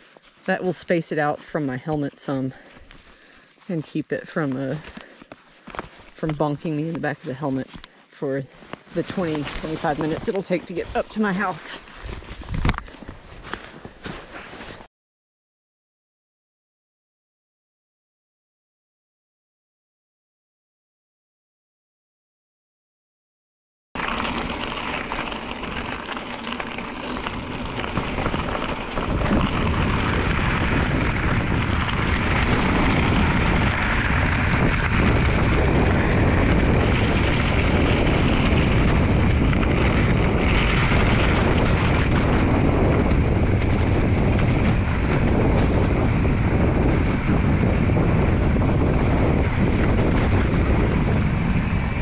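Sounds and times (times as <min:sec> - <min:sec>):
wind rushing over microphone: 0:08.6 - 0:13.7, 0:24.0 - 0:52.0.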